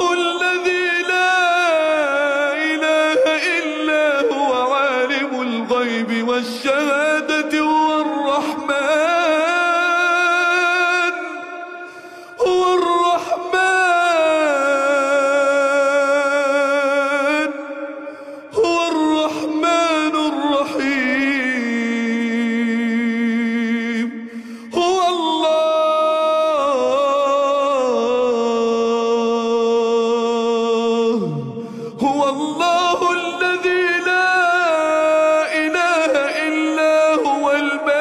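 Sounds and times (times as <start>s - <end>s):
man chanting melodically: 0.0s - 38.0s
man breathing: 11.6s - 12.4s, 17.9s - 18.6s, 24.2s - 24.7s, 31.6s - 32.0s.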